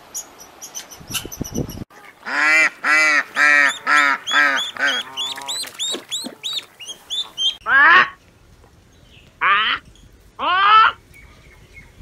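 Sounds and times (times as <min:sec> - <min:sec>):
duck quacking: 0:01.9 - 0:08.2
duckling peeps: 0:02.9 - 0:08.1.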